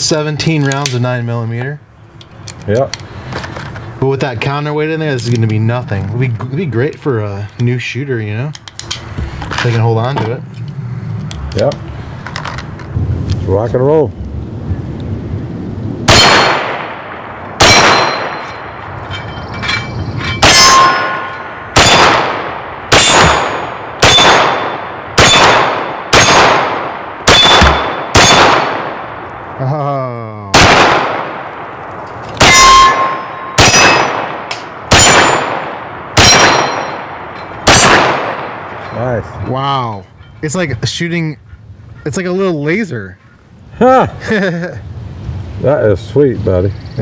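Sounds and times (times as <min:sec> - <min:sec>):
pistol shots: 0:16.1 - 0:18.7, 0:20.4 - 0:29.3, 0:30.5 - 0:31.7, 0:32.4 - 0:38.8
steel targets ringing: 0:17.6 - 0:22.2, 0:22.9 - 0:26.5, 0:27.3 - 0:28.5, 0:32.4 - 0:40.4.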